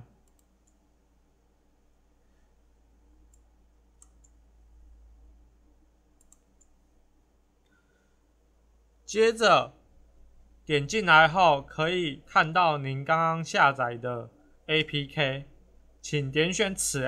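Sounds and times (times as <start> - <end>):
steady low hum: 0.0 - 17.0
computer mouse clicks: 0.1 - 0.9, 3.2 - 4.4, 6.2 - 6.8.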